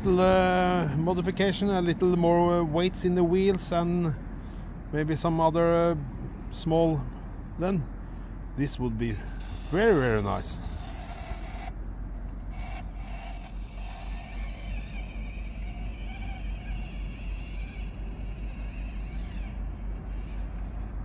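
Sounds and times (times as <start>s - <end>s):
small electric motor whining: 9.0s - 21.0s
low rumble: 9.2s - 21.0s.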